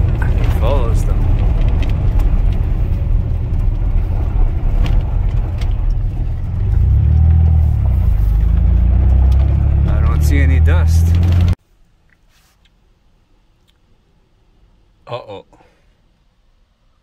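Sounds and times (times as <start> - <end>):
truck engine and tyre rumble: 0.0 - 11.6.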